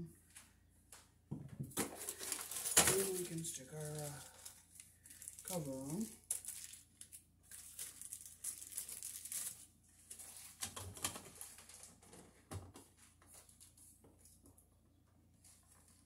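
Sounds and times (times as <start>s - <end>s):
plastic wrapper crinkling: 1.8s - 12.2s.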